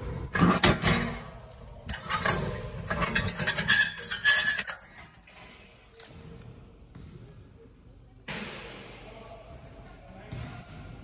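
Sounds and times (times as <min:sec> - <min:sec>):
metal door rattling: 0:00.4 - 0:01.3, 0:01.9 - 0:05.0.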